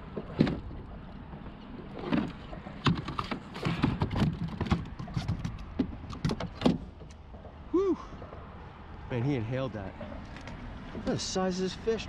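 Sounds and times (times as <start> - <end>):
knocks and rattles on plastic deck: 2.1 - 6.9.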